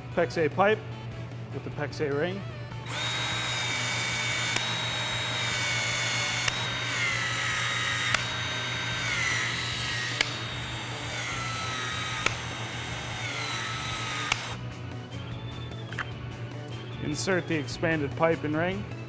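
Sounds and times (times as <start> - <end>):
expansion tool motor whining: 2.8 - 14.6
sharp tool click: 4.5 - 4.8, 6.2 - 7.2, 7.8 - 8.5, 10.1 - 10.5, 11.2 - 14.6.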